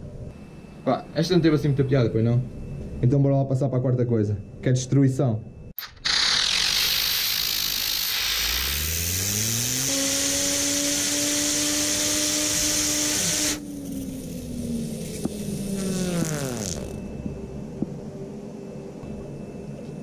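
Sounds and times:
air blow gun hissing: 5.8 - 17.0
fidget spinner whine: 5.8 - 20.0.

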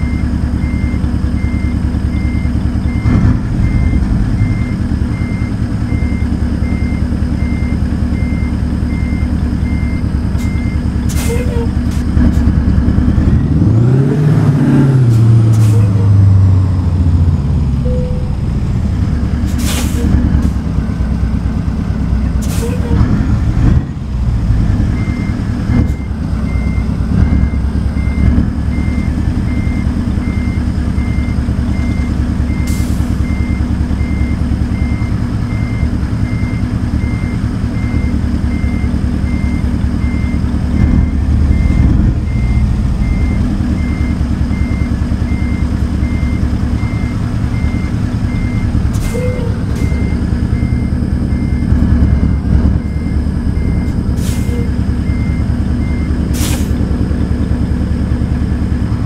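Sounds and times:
backup alarm beeping: 0.0 - 11.7, 17.8 - 18.4, 24.9 - 56.3
diesel truck engine running: 0.0 - 59.0.

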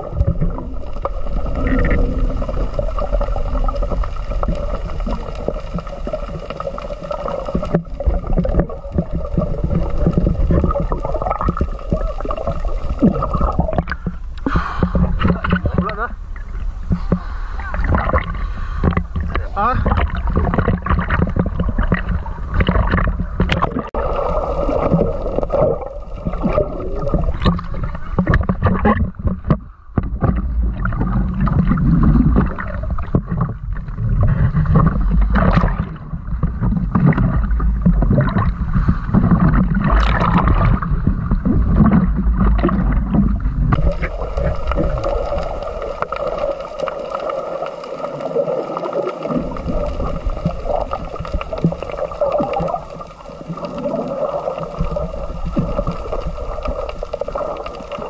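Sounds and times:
sea water sloshing against camera: 0.0 - 58.0
water splashes: 0.0 - 58.0
low rumble: 7.8 - 46.5
underwater hiss: 9.1 - 15.6, 16.2 - 19.3, 24.0 - 28.2, 38.4 - 39.8.

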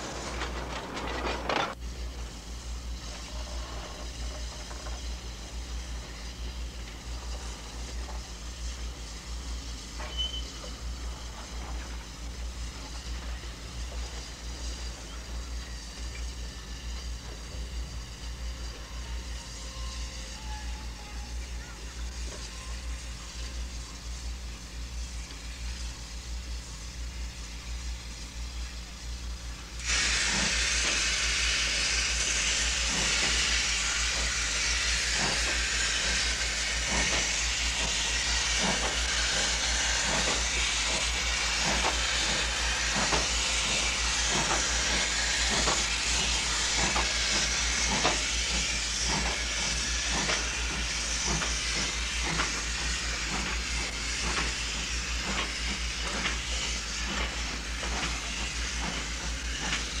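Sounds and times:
steam hissing: 0.0 - 60.0
steam locomotive chuffs: 0.0 - 60.0.

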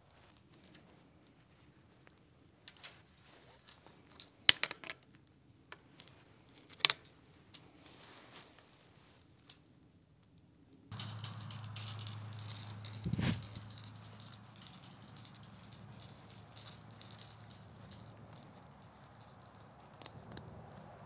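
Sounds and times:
steady low hum: 10.9 - 21.0
steel wire clicking and rattling: 10.9 - 21.0.

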